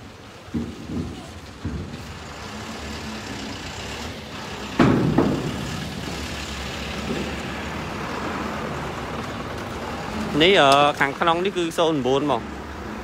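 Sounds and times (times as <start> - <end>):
wood and steel knocking on steel floor: 0.5 - 2.1, 4.8 - 5.8.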